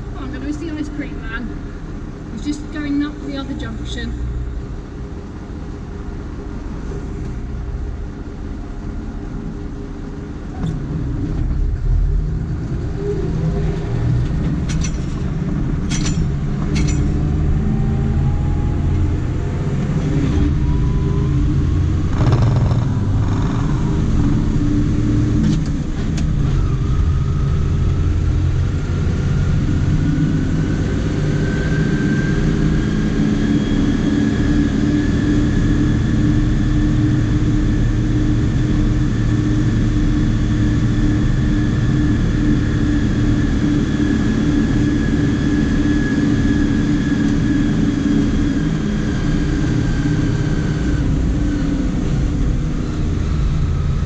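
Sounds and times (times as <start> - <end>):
tractor engine running: 0.0 - 30.9
rising engine whine: 0.0 - 54.0.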